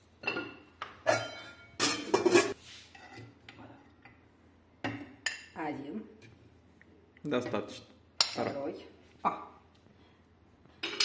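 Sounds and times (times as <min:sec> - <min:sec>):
kitchenware clattering: 0:00.2 - 0:03.4, 0:10.8 - 0:11.0
spoon and dishes clinking and scraping: 0:00.2 - 0:03.4, 0:10.8 - 0:11.0.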